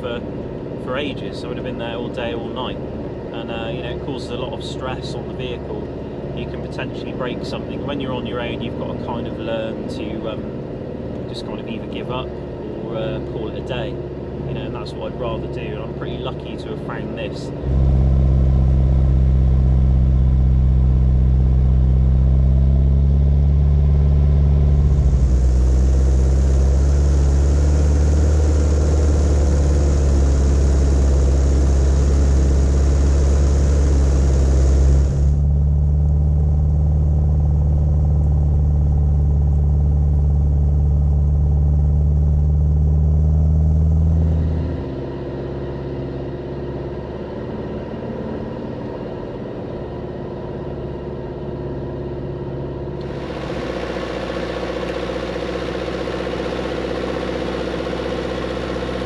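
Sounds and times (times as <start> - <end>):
engine pulling under load: 17.5 - 45.6, 53.0 - 59.0.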